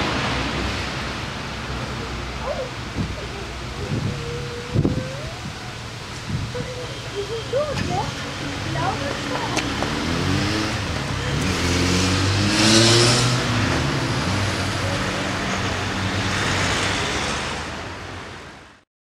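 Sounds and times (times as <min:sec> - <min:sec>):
car passing close: 0:00.0 - 0:03.2, 0:07.1 - 0:18.7
cars accelerating: 0:07.1 - 0:18.0.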